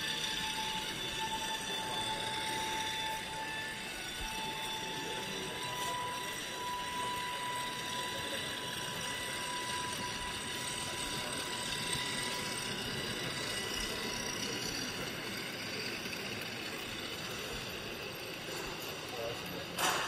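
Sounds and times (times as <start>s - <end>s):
model train rumble: 0.0s - 20.0s
thin high tone: 0.0s - 20.0s.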